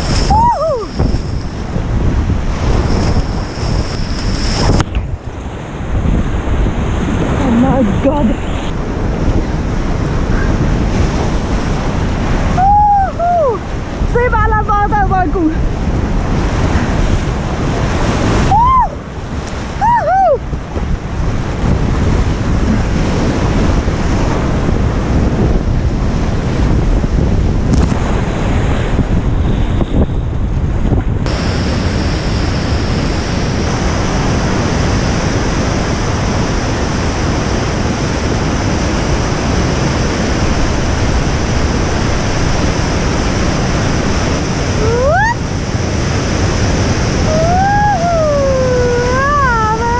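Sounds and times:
whitewater rushing: 0:00.0 - 0:05.3, 0:31.3 - 0:49.9
wind buffeting microphone: 0:00.0 - 0:49.9.

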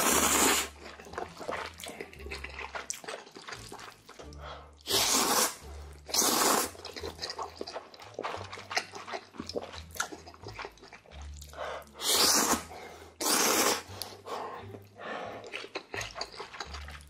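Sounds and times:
man slurping noodles: 0:00.0 - 0:00.8, 0:04.3 - 0:07.4, 0:11.9 - 0:15.4
wet chewing and smacking: 0:00.1 - 0:17.0.

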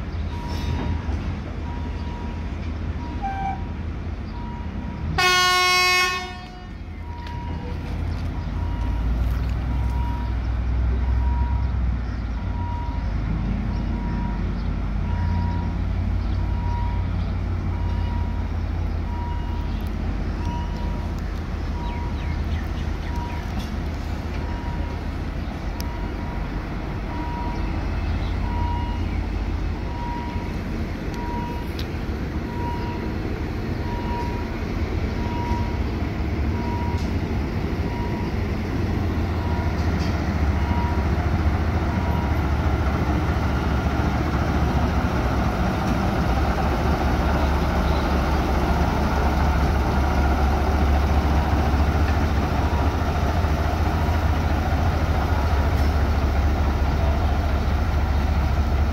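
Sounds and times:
locomotive engine rumble: 0:00.0 - 0:58.9
short beeps: 0:35.2 - 0:35.8.

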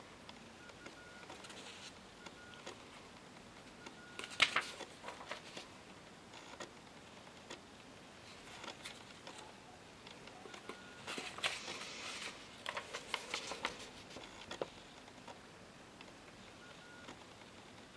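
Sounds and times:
paper cards rustling: 0:04.2 - 0:05.7, 0:08.2 - 0:09.5, 0:10.4 - 0:14.7.

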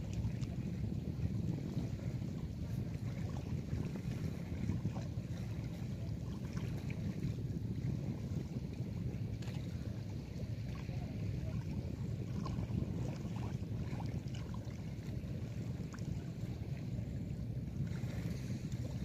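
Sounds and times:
river water splashing: 0:00.0 - 0:19.0
wind buffeting microphone: 0:00.0 - 0:19.0.

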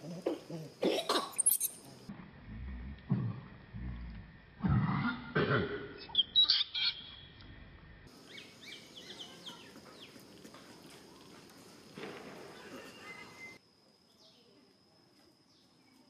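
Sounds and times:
birds chirping: 0:08.1 - 0:10.3, 0:12.4 - 0:13.6.

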